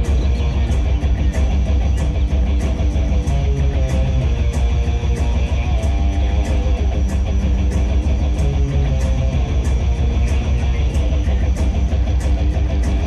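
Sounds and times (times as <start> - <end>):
guitar music with steady beat: 0.0 - 13.0.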